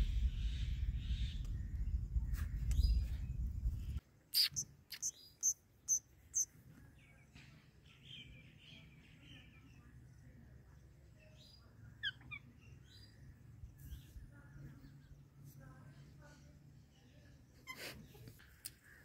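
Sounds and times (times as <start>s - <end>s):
low rumbling noise: 0.0s - 4.0s.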